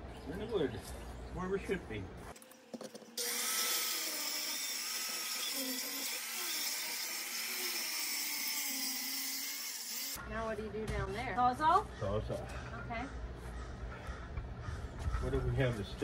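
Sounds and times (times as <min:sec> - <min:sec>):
circular saw cutting: 0:02.4 - 0:10.2.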